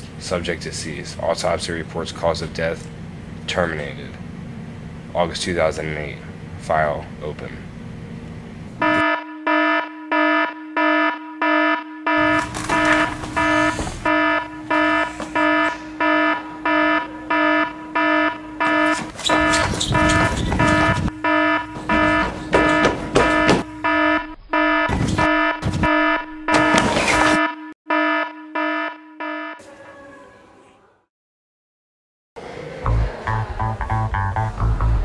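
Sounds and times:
electronic alarm beeping: 8.8 - 29.6
scattered knocks: 17.5 - 24.0.

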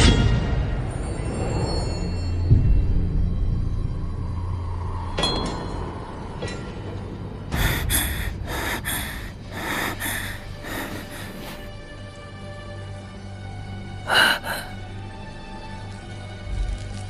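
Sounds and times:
low droning music: 2.1 - 17.0
rapid frightened gasping breaths: 7.5 - 11.7, 14.1 - 14.8.

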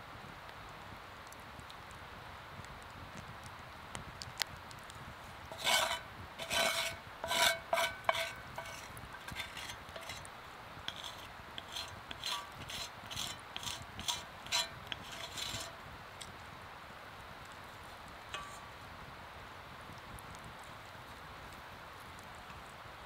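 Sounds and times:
scraping strokes with slight ring: 5.5 - 10.3, 10.9 - 15.8, 18.3 - 18.7.

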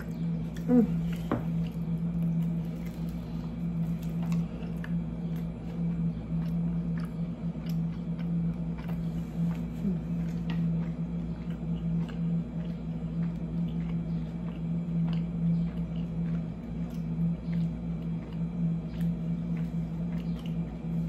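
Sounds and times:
biting and chewing taco: 0.0 - 21.0
steady low hum: 0.0 - 21.0.

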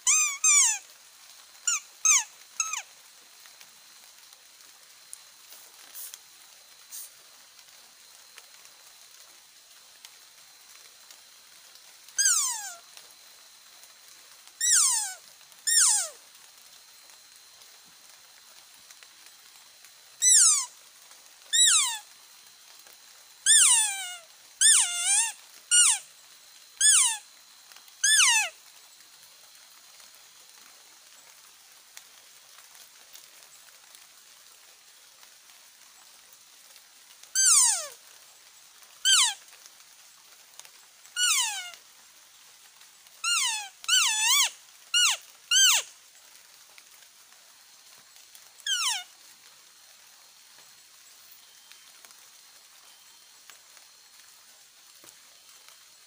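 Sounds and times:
deer call squealing: 0.0 - 0.8, 1.7 - 2.8, 12.2 - 12.8, 14.6 - 16.2, 20.2 - 20.7, 21.6 - 22.0, 23.5 - 26.0, 26.8 - 27.2, 28.0 - 28.5, 37.4 - 38.0, 39.0 - 39.4, 41.2 - 41.8, 43.2 - 45.9, 48.7 - 49.1.

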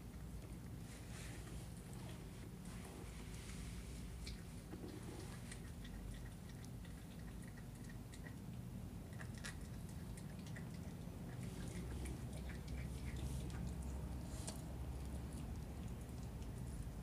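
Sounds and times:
puppy chewing wet mouth sounds: 4.1 - 17.0
teeth clicking on bone: 5.6 - 13.9.

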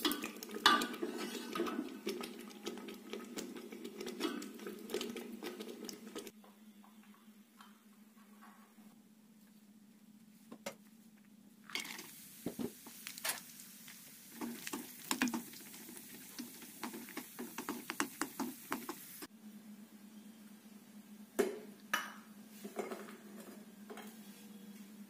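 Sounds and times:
metal spoon scraping pan: 0.0 - 2.2
nuts sizzling in hot oil: 0.0 - 6.3, 11.7 - 19.3.

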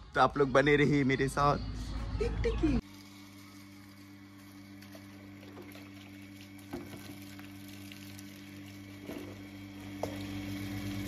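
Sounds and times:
hose water splashing into tub: 3.9 - 10.3.

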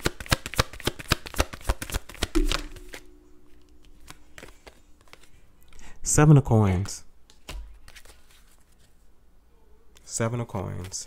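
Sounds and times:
cards being shuffled: 4.0 - 5.4, 6.8 - 9.0, 10.7 - 11.0.

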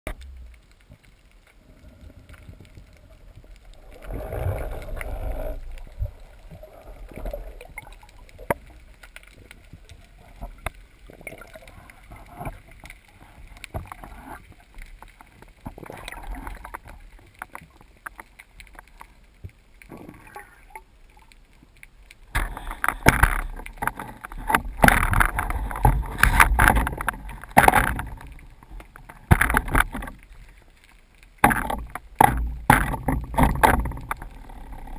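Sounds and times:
underwater clicks and taps: 0.1 - 1.5, 2.3 - 34.9
underwater water rumble: 0.1 - 34.9.

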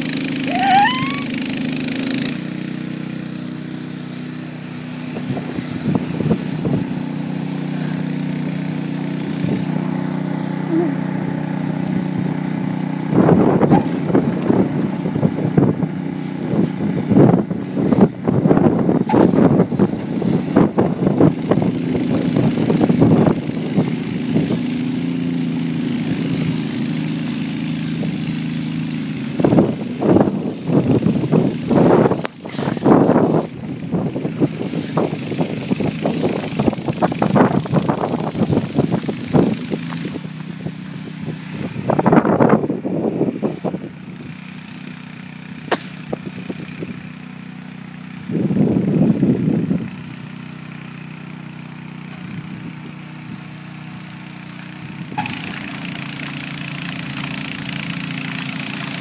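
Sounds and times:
snowblower engine running: 0.0 - 59.0.

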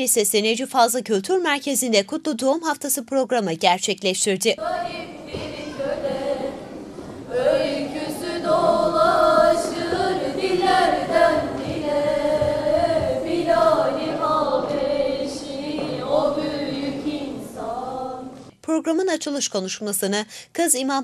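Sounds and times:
girls singing a cappella hymn: 4.5 - 18.5.

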